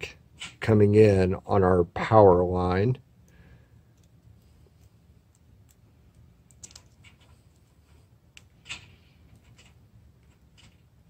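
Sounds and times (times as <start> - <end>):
wires clicking and rustling: 3.2 - 11.0.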